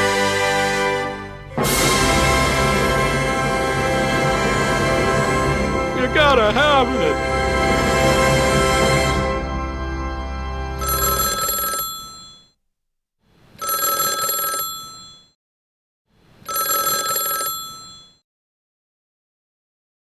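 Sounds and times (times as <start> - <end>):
music: 0.0 - 10.8
telephone ringing: 5.6 - 7.8, 10.8 - 12.6, 13.6 - 15.4, 16.4 - 18.2.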